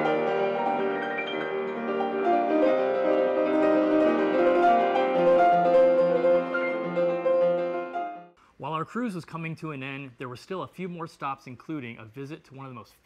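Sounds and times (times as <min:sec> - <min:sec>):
solo grand piano: 0:00.0 - 0:08.4.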